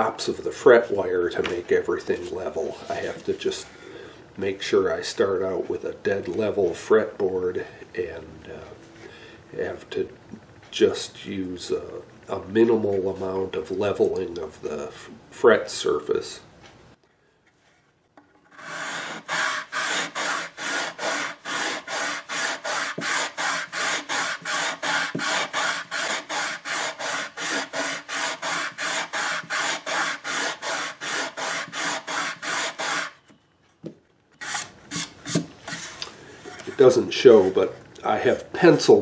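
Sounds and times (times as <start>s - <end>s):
sandpaper rubbing on wood: 18.6s - 33.2s.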